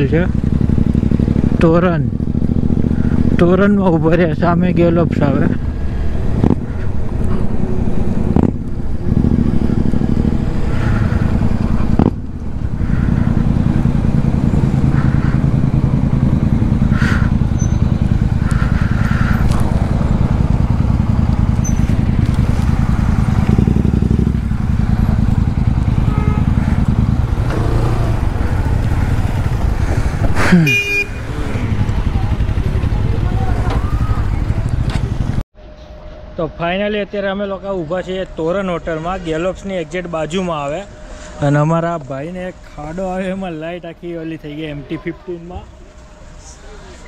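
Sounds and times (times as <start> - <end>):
motorcycle engine running: 0.0 - 35.4.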